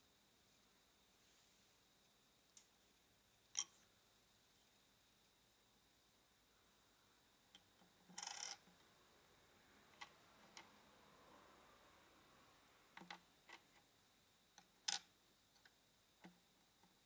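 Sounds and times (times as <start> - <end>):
plastic toy pieces clicking: 8.2 - 8.6.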